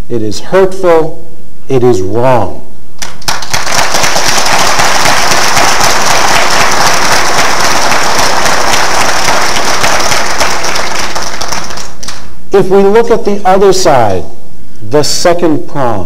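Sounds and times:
audience applauding: 0:03.0 - 0:12.3.

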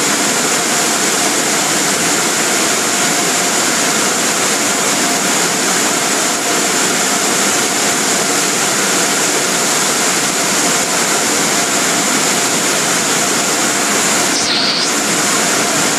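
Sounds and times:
blower dryers rushing air: 0:00.0 - 0:15.9
constant high whine: 0:00.0 - 0:15.9.

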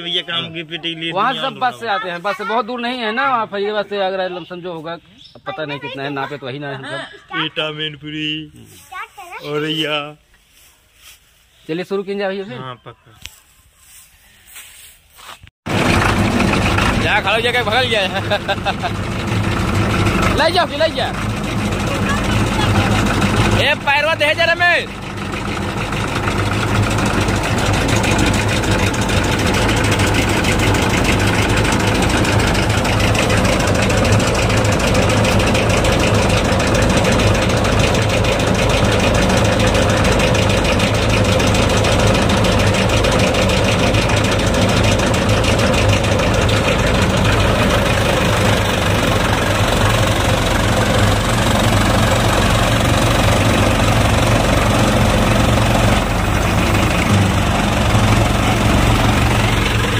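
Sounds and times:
diesel tractor engine running: 0:00.0 - 0:06.6, 0:15.6 - 0:59.9
threshing drum whirring: 0:15.7 - 0:59.9.

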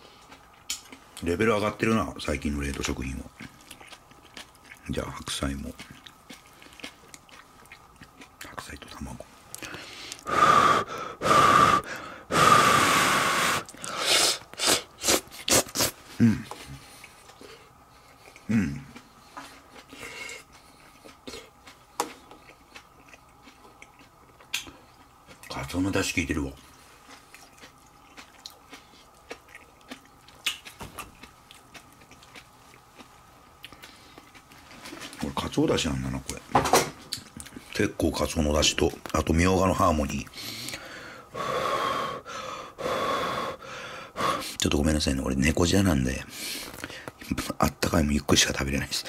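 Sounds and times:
chewing noodles: 0:00.0 - 0:01.4, 0:02.4 - 0:10.4, 0:11.6 - 0:36.4, 0:37.1 - 0:39.4
man blowing on hot food: 0:10.2 - 0:16.4, 0:41.3 - 0:44.6.

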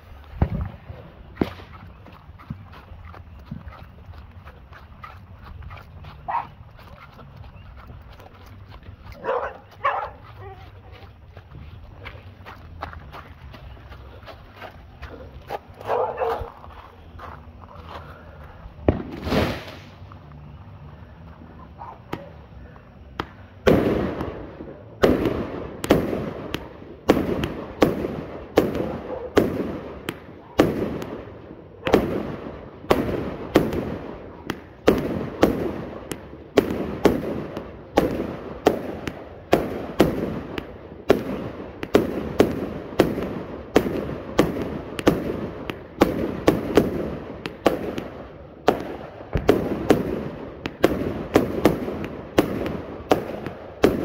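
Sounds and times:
firework shots crackling: 0:00.0 - 0:02.9, 0:18.8 - 0:20.2, 0:22.0 - 0:54.0.

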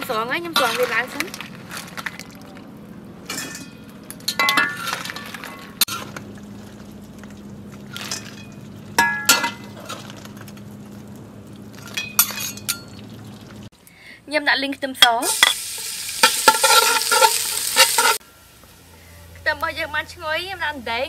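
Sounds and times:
metal spatula scraping a wok: 0:00.1 - 0:01.3, 0:15.3 - 0:18.2.

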